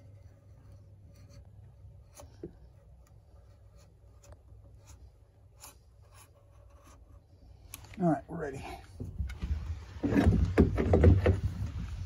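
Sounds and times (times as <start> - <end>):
knife blade scraping wood: 0.0 - 7.2.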